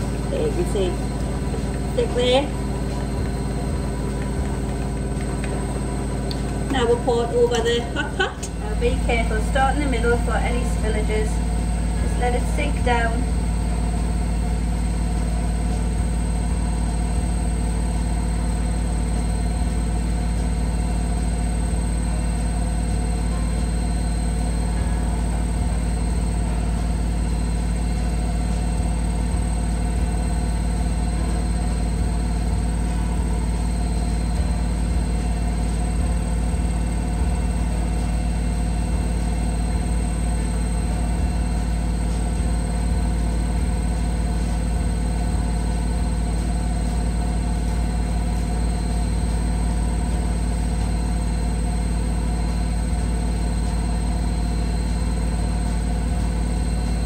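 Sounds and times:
low mechanical hum: 0:00.0 - 0:57.0.

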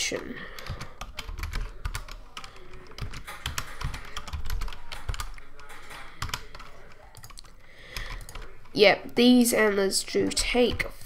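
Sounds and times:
laptop keyboard keys clicking: 0:00.1 - 0:08.8.

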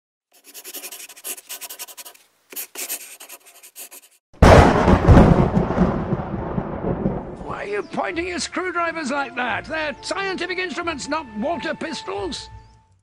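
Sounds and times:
pencil scratching on paper: 0:00.3 - 0:04.2
deep rumbling boom: 0:04.4 - 0:07.6.

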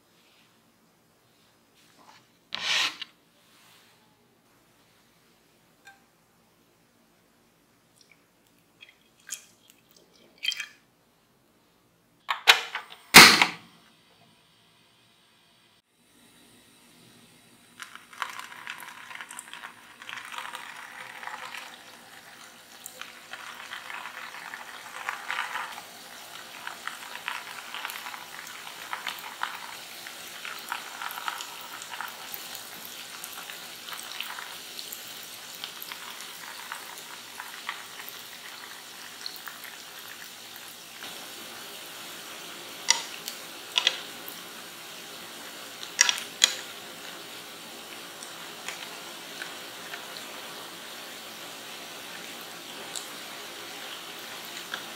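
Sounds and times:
food frying in oil: 0:17.6 - 0:54.9.

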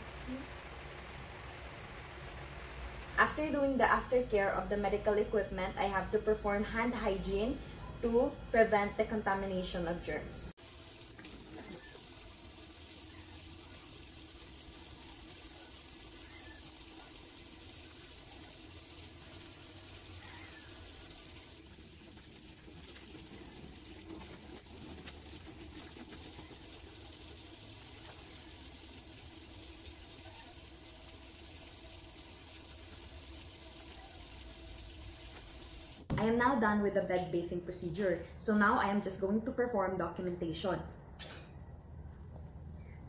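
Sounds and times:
hands being washed: 0:10.6 - 0:36.1.

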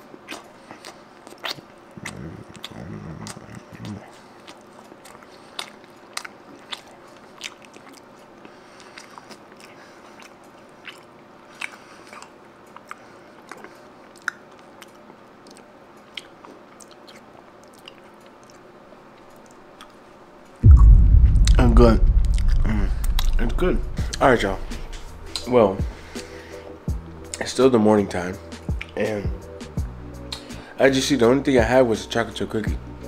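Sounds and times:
person chewing cookie: 0:00.0 - 0:20.1.

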